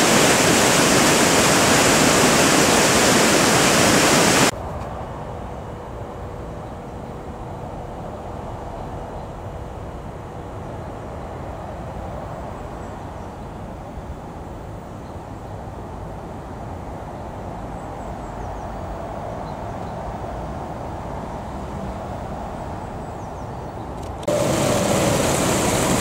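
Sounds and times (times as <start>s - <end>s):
water rushing: 0.0s - 4.5s, 24.2s - 26.0s.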